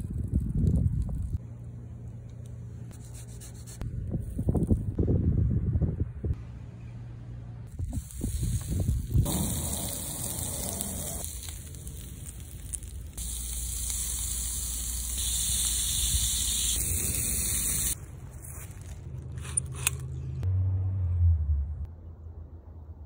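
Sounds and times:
food sizzling on a grill: 7.9 - 18.0.

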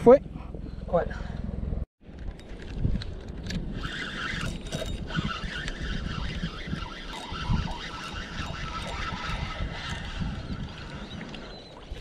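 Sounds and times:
wind buffeting microphone: 0.0 - 12.0
fishing reel gears whirring: 3.2 - 12.0.

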